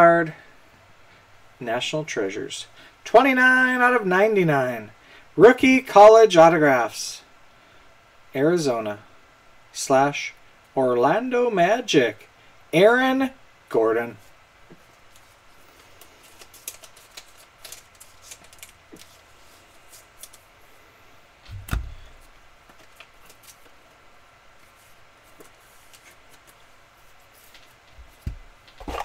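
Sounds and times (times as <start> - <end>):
soft thump: 21.5 - 22.0.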